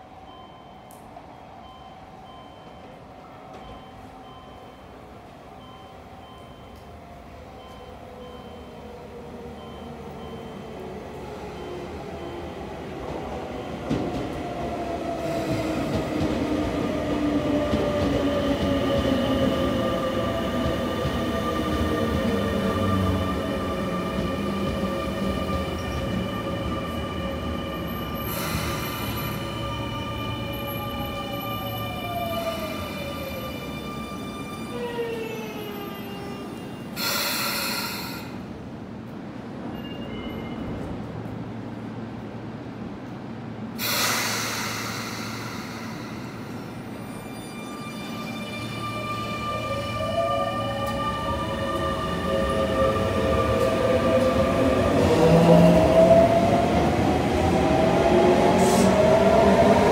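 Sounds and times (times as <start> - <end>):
train wheels rumbling on rails: 9.5 - 47.7
compressed air hiss: 37.0 - 38.4, 43.8 - 46.8.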